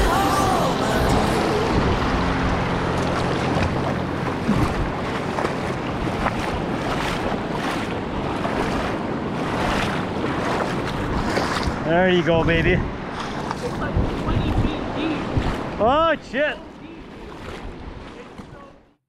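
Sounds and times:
water splashing and rushing: 0:00.0 - 0:19.0
wind buffeting microphone: 0:01.0 - 0:18.8
legs wading through stream: 0:01.1 - 0:19.0.

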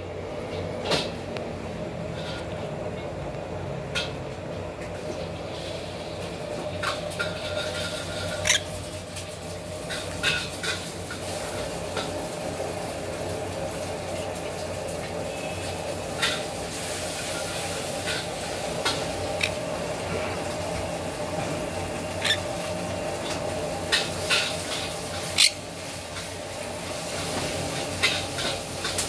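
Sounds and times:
parrots squeaking: 0:07.5 - 0:08.9, 0:18.1 - 0:19.7, 0:21.8 - 0:22.7, 0:24.7 - 0:25.7.

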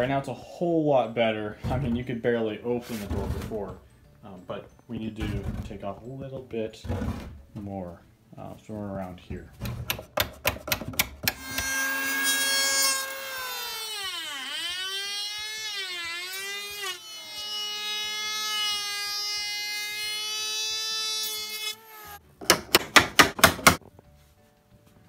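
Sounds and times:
electric hand planer whining: 0:11.3 - 0:22.2.

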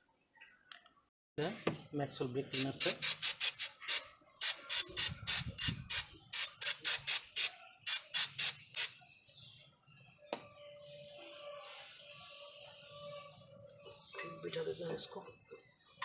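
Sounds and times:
aerosol spray bursts: 0:02.5 - 0:09.0.

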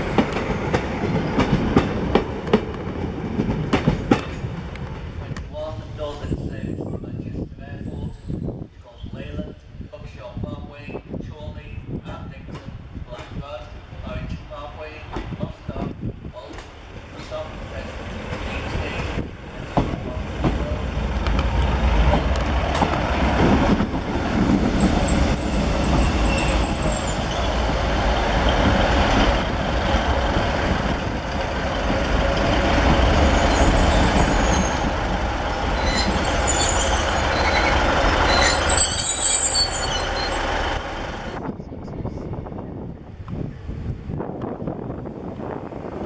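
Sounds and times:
wheels rumbling on rails: 0:00.0 - 0:07.2, 0:15.2 - 0:46.0
diesel train engines running: 0:16.6 - 0:46.0
high-pitched squeals: 0:24.8 - 0:27.7, 0:33.2 - 0:42.3.

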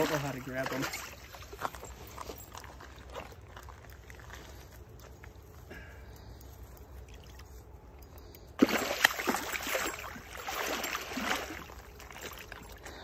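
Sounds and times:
fish thrashing and splashing: 0:08.6 - 0:13.0.

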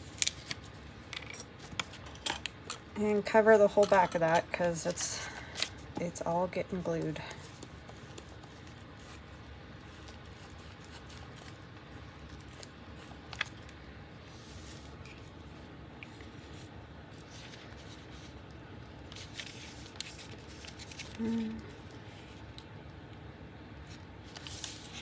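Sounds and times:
paper rustling: 0:19.0 - 0:22.4, 0:23.8 - 0:25.0.

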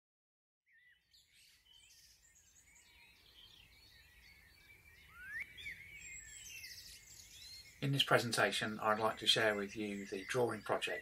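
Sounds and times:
small birds chirping and warbling: 0:00.7 - 0:11.0
bird call rising in pitch: 0:04.2 - 0:07.6.

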